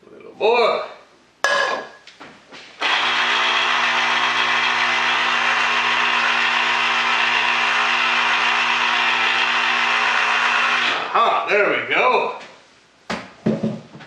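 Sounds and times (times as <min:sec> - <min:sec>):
electric juicer motor humming: 0:02.8 - 0:11.1.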